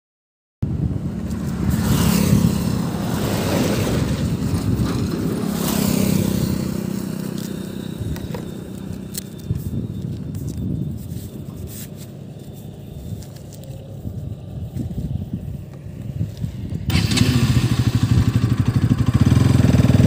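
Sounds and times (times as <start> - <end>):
low vehicle rumble: 0.6 - 20.0
gloves rustling and scraping: 1.3 - 16.9.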